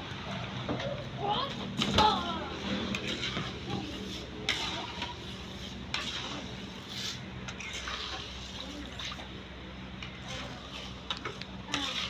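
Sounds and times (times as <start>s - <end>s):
liquid sloshing and dribbling: 1.7s - 12.0s
metal ladle stirring in wok: 2.8s - 12.0s.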